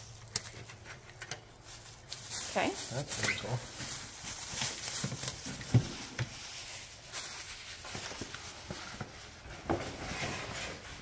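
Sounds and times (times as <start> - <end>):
cardboard packaging knocks and scrapes: 3.8 - 6.4, 7.8 - 11.0.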